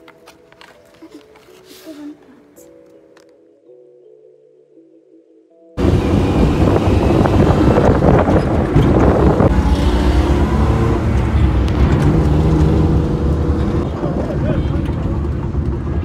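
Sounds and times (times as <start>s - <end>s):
car road noise from inside: 5.8s - 16.0s.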